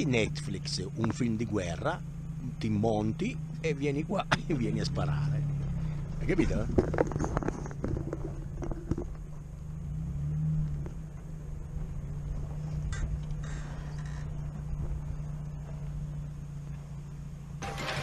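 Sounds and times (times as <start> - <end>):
van engine running: 0.0 - 18.0.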